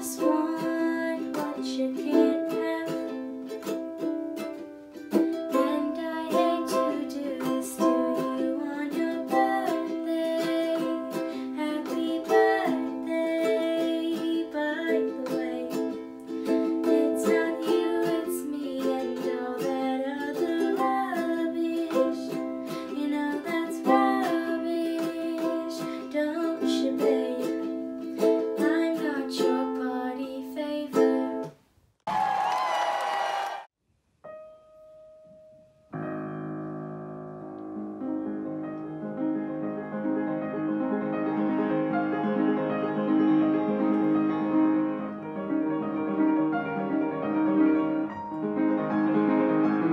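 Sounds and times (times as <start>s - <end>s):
young woman singing: 0.0s - 3.5s, 5.5s - 16.0s, 16.6s - 27.7s, 28.3s - 31.5s
ukulele strumming chords: 0.0s - 31.6s.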